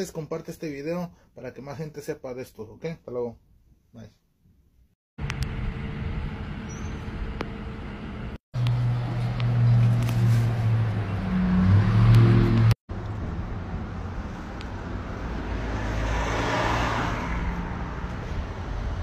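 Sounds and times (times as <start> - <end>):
car passing: 8.7 - 19.0.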